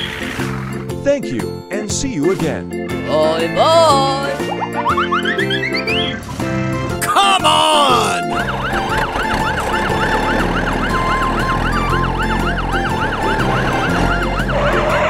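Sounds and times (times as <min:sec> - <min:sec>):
fire truck siren yelping: 0:07.1 - 0:15.0.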